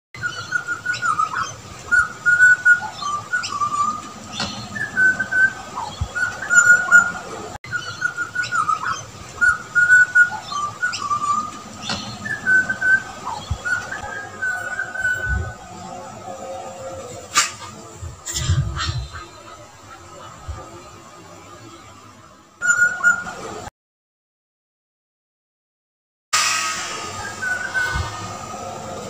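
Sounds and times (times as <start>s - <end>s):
butcherbird whistled calls: 0.2s - 15.7s, 22.6s - 23.4s, 26.4s - 28.7s.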